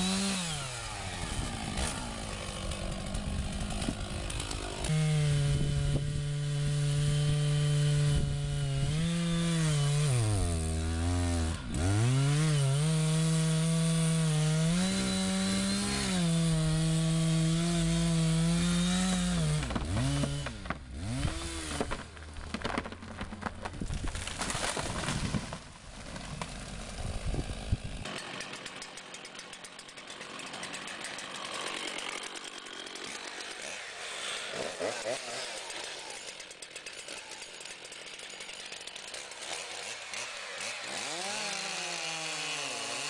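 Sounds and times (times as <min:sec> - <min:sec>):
tree trunk cracking: 0:00.0 - 0:04.9, 0:18.7 - 0:28.6
chainsaw cutting tree trunk: 0:00.0 - 0:43.0.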